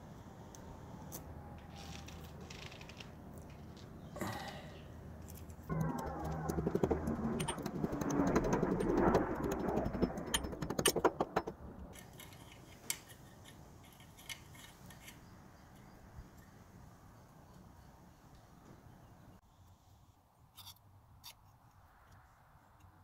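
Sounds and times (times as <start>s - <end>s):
clattering: 6.8s - 12.0s.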